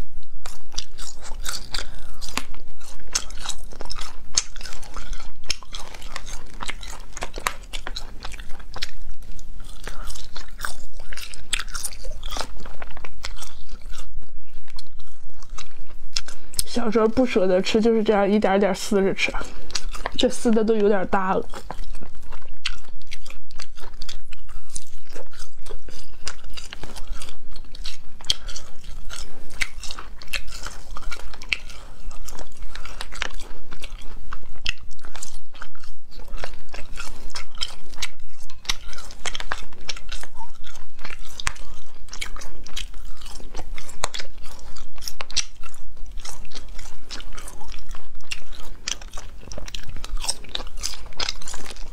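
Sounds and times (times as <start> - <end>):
chewing and biting snack: 0.0 - 51.9.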